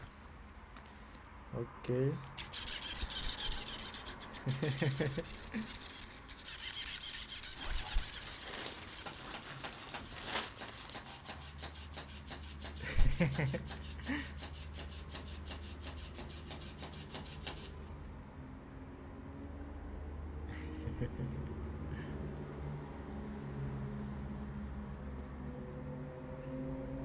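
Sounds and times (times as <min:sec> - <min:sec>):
toy fish tail rapid rasp: 0:02.2 - 0:17.8.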